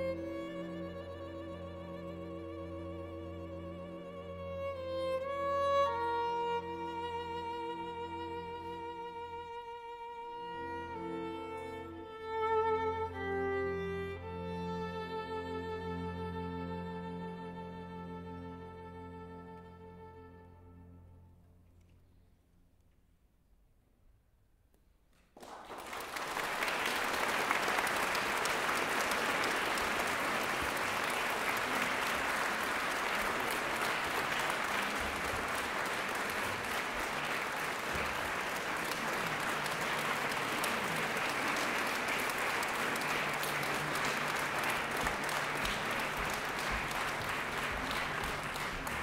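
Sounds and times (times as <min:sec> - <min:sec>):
audience applauding: 0:25.2 - 0:49.0.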